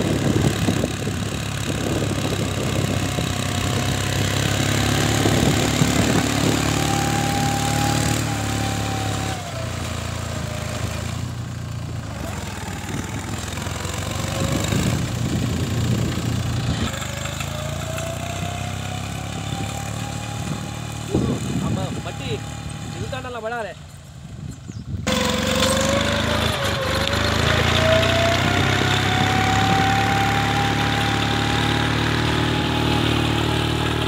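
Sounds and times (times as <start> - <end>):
tractor engine under load: 0.0 - 34.0.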